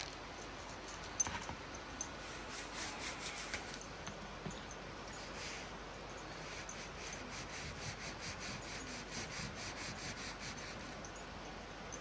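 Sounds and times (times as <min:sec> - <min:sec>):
rhythmic rasping strokes: 0:05.1 - 0:12.0.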